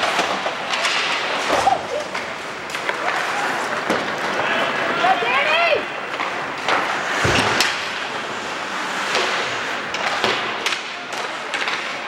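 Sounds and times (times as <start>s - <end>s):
rink noise rushing: 0.0s - 10.7s
hockey sticks and puck clacking: 0.0s - 12.0s.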